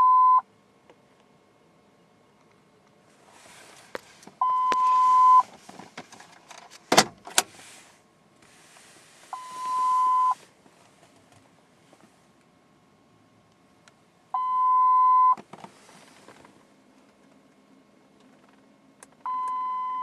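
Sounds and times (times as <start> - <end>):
electronic beeps: 0.0 - 0.4, 4.4 - 5.4, 9.4 - 10.4.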